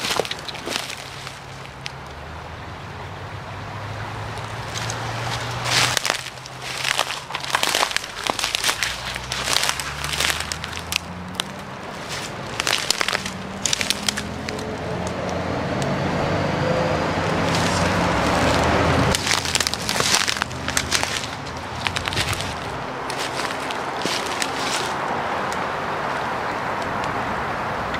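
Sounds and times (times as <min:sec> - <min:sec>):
footsteps crunching dry leaves: 0:00.0 - 0:02.0, 0:04.3 - 0:15.4, 0:17.1 - 0:25.2
vehicle rushing noise: 0:00.0 - 0:27.9.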